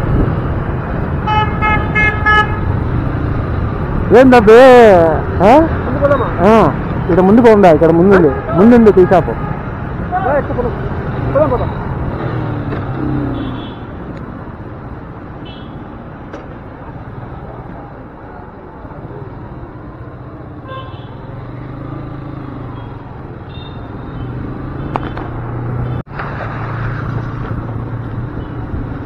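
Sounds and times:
street traffic noise: 0:00.0 - 0:29.0
vehicle horn beeps: 0:23.5 - 0:24.3.

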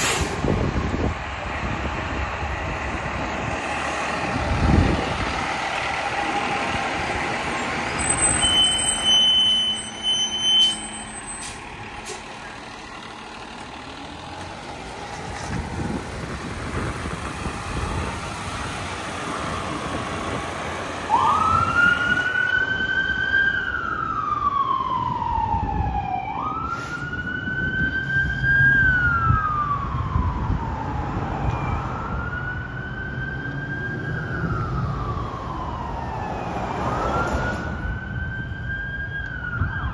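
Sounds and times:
fire engine diesel engine: 0:00.0 - 0:39.9
electronic siren wailing: 0:21.1 - 0:39.9.

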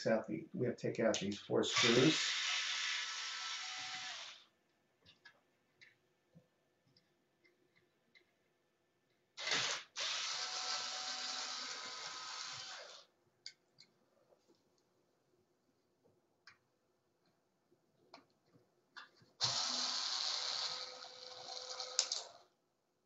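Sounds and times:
power screwdriver running: 0:01.7 - 0:04.4, 0:09.4 - 0:13.1, 0:19.4 - 0:22.4.

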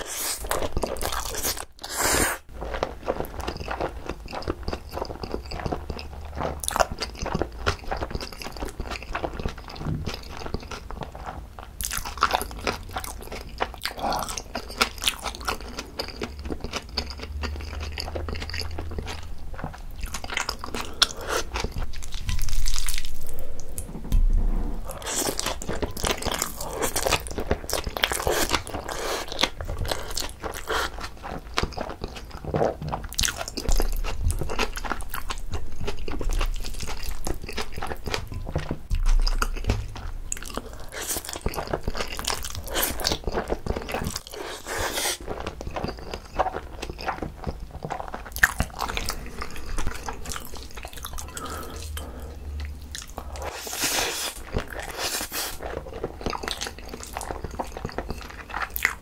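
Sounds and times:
wet chewing mouth sounds: 0:00.0 - 0:23.9, 0:24.8 - 0:59.0
slurping noodles: 0:01.3 - 0:02.4, 0:44.2 - 0:45.3, 0:53.2 - 0:55.8.

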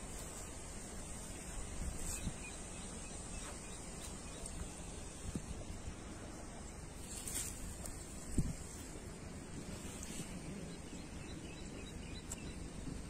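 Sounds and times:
wind rumble on microphone: 0:04.4 - 0:13.0.

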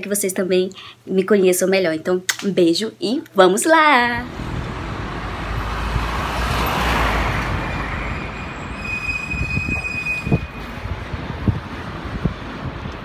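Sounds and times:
low steady rumble: 0:04.1 - 0:08.7
vehicle passing: 0:04.2 - 0:08.8
high thin squeal: 0:06.6 - 0:11.0.

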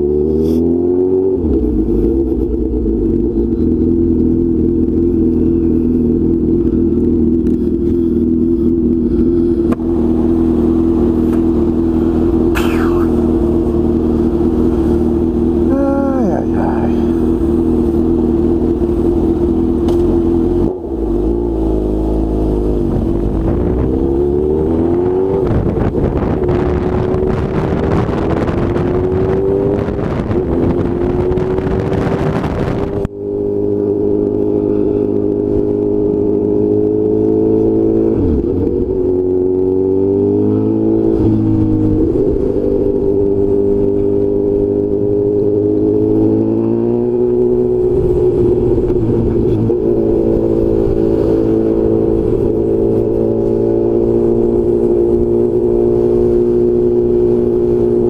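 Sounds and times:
motorcycle engine running: 0:00.0 - 0:58.0
wind buffeting microphone: 0:22.8 - 0:33.1.

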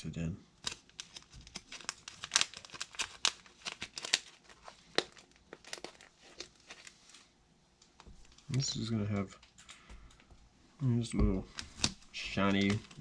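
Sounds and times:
fibres pulled apart crackling: 0:00.6 - 0:07.2.

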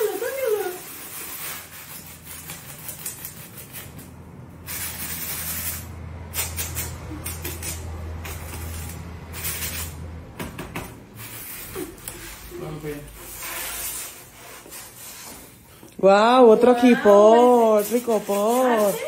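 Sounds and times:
cardboard and paper rustling: 0:00.0 - 0:04.1, 0:16.8 - 0:19.0.

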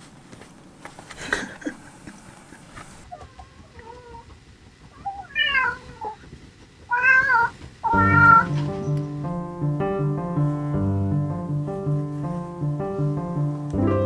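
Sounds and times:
cat meowing: 0:05.0 - 0:06.2, 0:06.9 - 0:08.6
piano music: 0:07.9 - 0:14.0.

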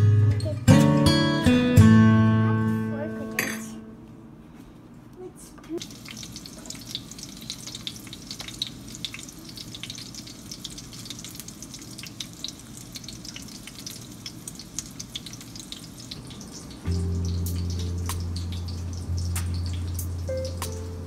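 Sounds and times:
cutlet sizzling in hot oil: 0:05.8 - 0:21.0.

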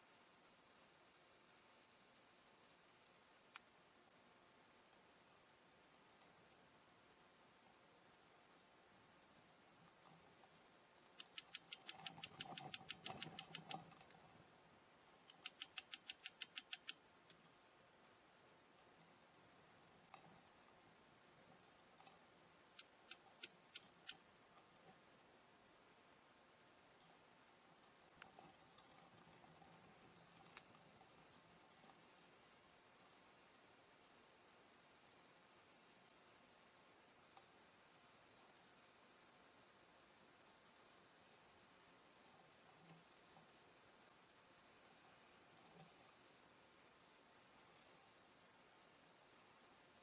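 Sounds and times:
hand tool clicking: 0:11.2 - 0:14.0, 0:15.2 - 0:17.0, 0:22.8 - 0:24.2.

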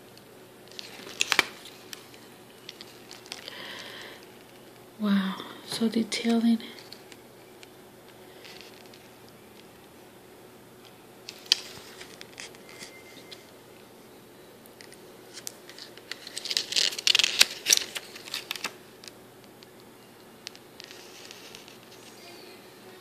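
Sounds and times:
booklet pages turning: 0:00.6 - 0:04.8, 0:06.2 - 0:09.9, 0:10.8 - 0:13.5, 0:14.8 - 0:19.8, 0:20.5 - 0:22.3
crinkling paper rustle: 0:00.6 - 0:04.8, 0:06.1 - 0:09.9, 0:11.2 - 0:13.5, 0:14.8 - 0:19.2, 0:20.5 - 0:22.4.

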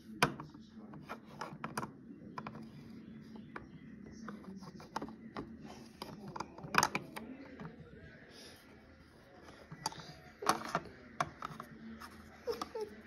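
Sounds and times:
plastic figurines clacking on shelf: 0:00.2 - 0:02.7, 0:04.2 - 0:07.8, 0:09.6 - 0:12.9.

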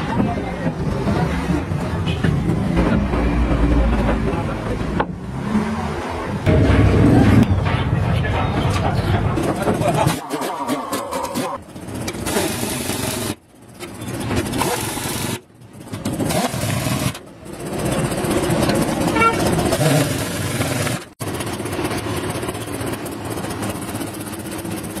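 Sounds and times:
pneumatic impact wrench hammering: 0:10.0 - 0:13.4, 0:14.3 - 0:17.2.

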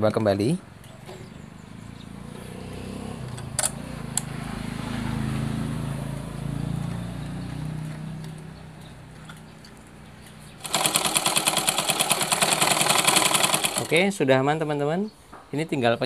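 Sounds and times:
sewing machine rumbling: 0:10.6 - 0:14.0.

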